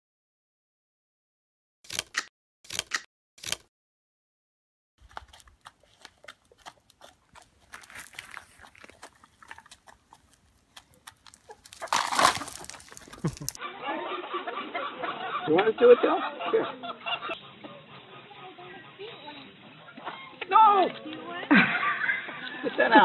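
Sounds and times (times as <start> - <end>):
hens pecking grain on concrete: 5.0 - 14.1
egg cracking sound effects: 8.4 - 13.6.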